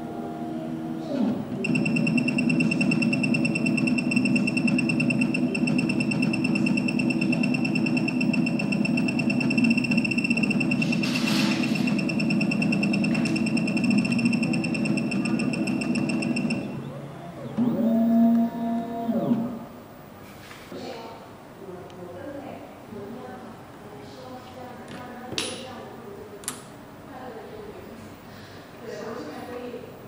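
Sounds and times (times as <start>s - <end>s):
cutting hum: 0.0s - 19.6s
key cutting machine whine: 1.6s - 11.0s, 11.6s - 16.9s.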